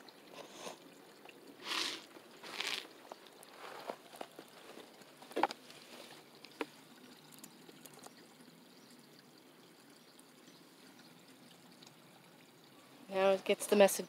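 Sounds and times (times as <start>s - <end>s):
light splashes and taps: 0.0s - 9.3s
water trickling: 0.0s - 14.0s.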